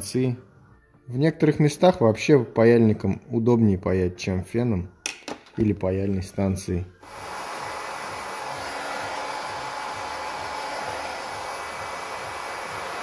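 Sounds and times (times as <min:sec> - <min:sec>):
heat gun blowing air: 0:07.0 - 0:13.0.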